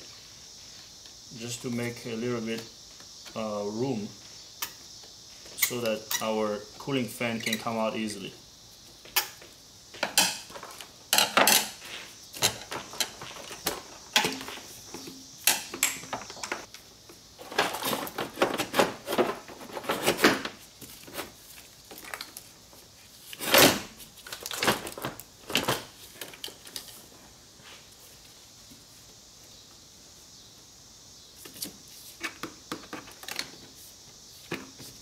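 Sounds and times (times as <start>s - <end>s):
plastic and metal parts rattling: 17.4s - 20.5s.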